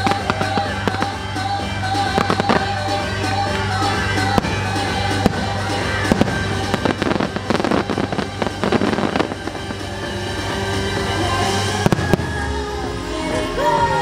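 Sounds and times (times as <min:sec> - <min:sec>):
fireworks crackling pops: 0:00.0 - 0:10.6
fireworks bangs: 0:00.0 - 0:12.6
music: 0:00.0 - 0:14.0.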